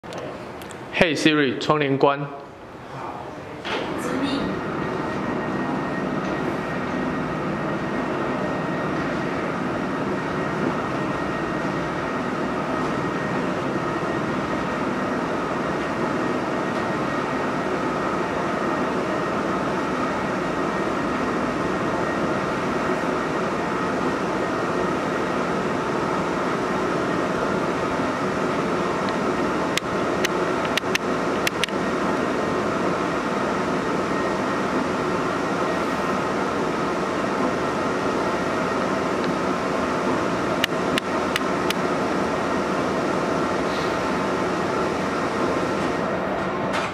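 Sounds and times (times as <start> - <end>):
blind motors humming: 0.0 - 46.9
sharp clicks: 30.2 - 31.8.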